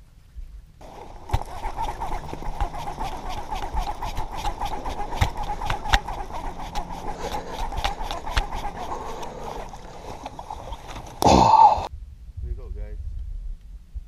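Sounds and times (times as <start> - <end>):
fishing reel gears whirring: 0.8 - 11.2.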